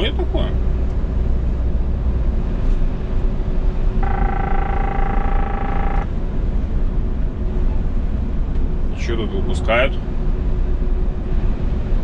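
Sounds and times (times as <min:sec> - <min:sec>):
truck cab engine and road drone: 0:00.0 - 0:12.0
steady pitched tone: 0:04.0 - 0:06.1.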